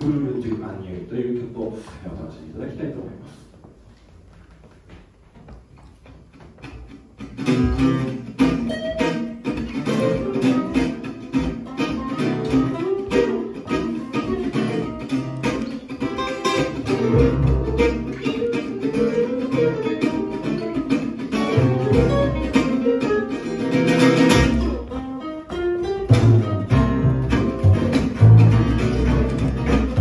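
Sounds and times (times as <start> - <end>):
plucked double bass: 7.2 - 30.0
strummed guitar chords: 7.2 - 30.0.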